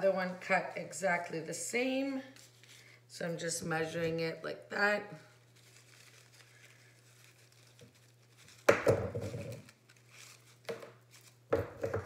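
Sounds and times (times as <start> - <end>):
handling noise on countertop: 7.3 - 12.0.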